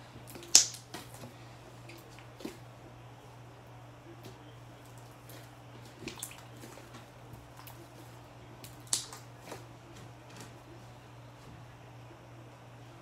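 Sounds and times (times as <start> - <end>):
wet slime squishing: 0.0 - 2.8, 4.2 - 10.8.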